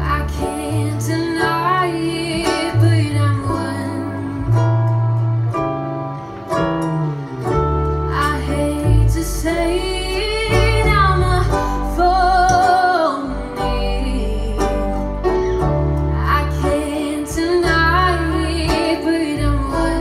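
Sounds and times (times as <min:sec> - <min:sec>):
woman singing: 0:00.0 - 0:04.6, 0:08.1 - 0:15.2, 0:16.0 - 0:20.0
guitar: 0:00.0 - 0:20.0
steady bass: 0:00.0 - 0:20.0.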